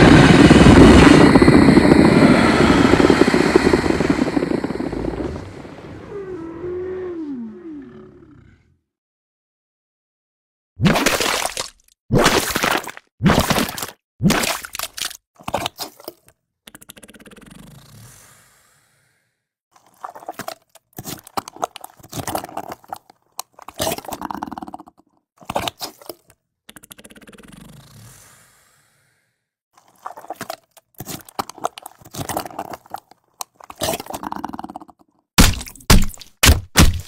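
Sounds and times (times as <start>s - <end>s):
falling noisy sound: 0.0s - 6.8s.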